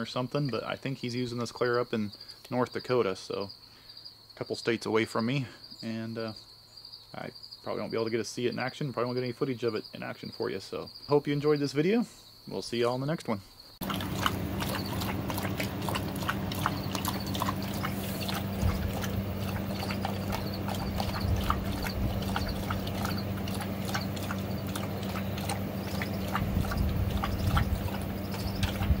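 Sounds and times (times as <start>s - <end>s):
dogs lapping water: 13.8s - 29.0s.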